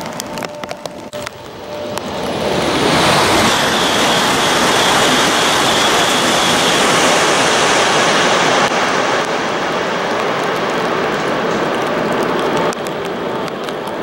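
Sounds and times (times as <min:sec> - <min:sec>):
high-speed train passing: 0:00.0 - 0:14.0
faint high whine: 0:00.2 - 0:09.7.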